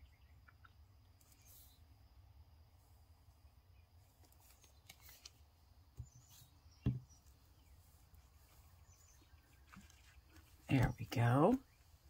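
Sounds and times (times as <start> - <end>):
plastic bottle knocking on table: 6.8 - 7.0.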